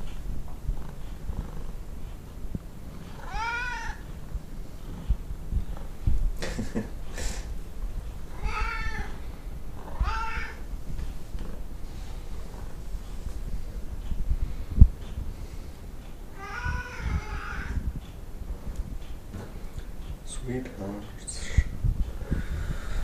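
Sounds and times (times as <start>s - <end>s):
cats meowing: 3.1s - 4.1s, 8.3s - 9.2s, 9.8s - 10.7s, 16.3s - 17.8s.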